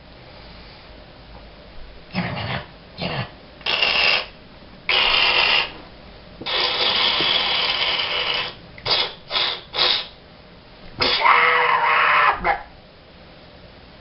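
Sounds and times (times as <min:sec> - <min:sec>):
kitten hissing: 0:02.1 - 0:05.8, 0:06.4 - 0:10.2, 0:11.0 - 0:12.7.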